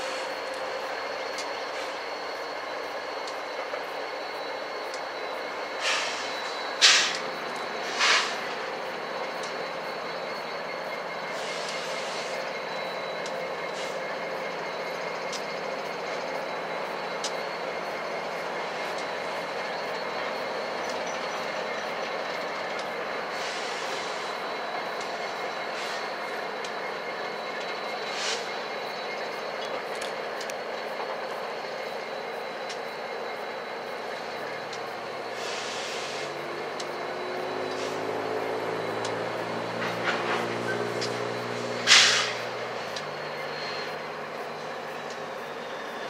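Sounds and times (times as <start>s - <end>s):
diesel locomotive engines running: 0.0s - 46.0s
steady high whine: 0.0s - 46.0s
short hisses: 41.9s - 42.4s.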